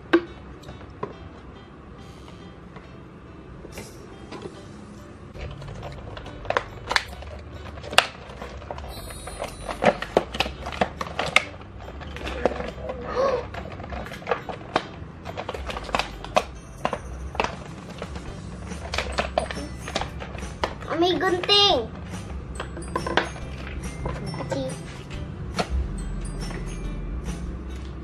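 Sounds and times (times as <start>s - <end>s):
plastic box clicking and crinkling: 9.6s - 18.2s.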